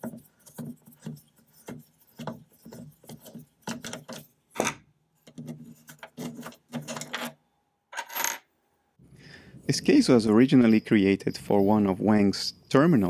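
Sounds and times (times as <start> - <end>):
screw creaking scrapes: 5.3 - 7.4.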